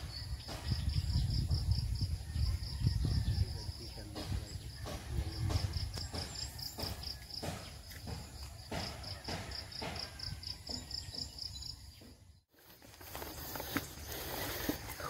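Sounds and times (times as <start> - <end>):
brushing rustling sounds: 12.5 - 15.0.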